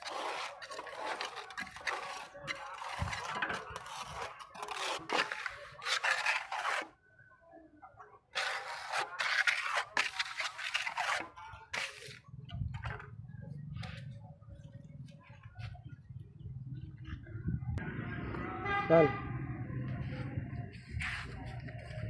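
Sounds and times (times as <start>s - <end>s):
trowel scraping cement on tile: 0.0s - 6.9s, 8.3s - 12.2s.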